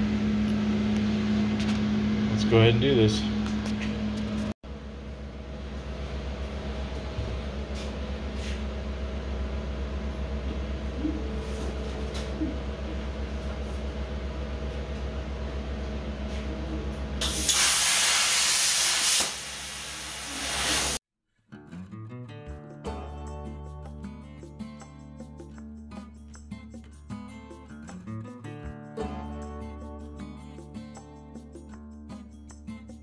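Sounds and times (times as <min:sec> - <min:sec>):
plasma cutter humming: 0:17.2 - 0:21.0
plasma torch air hiss: 0:17.2 - 0:21.0.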